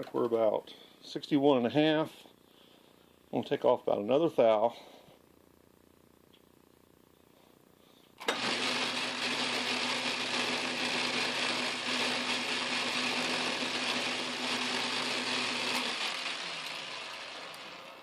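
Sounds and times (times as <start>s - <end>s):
lathe motor humming: 8.2s - 18.0s.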